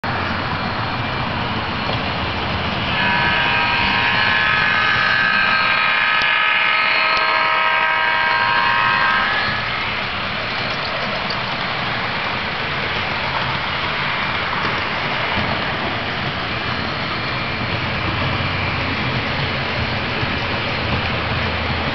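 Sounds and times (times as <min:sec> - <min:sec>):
model train rushing on track: 0:00.0 - 0:21.9
multi-pitched whine: 0:00.2 - 0:11.4.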